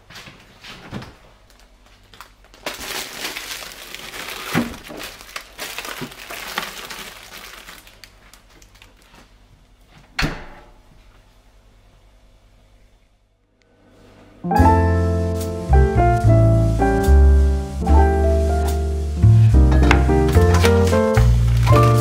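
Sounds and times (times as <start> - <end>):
packaging rustling and crinkling: 1.3 - 9.4, 17.4 - 22.0
items knocking on hard surface: 19.7 - 22.0.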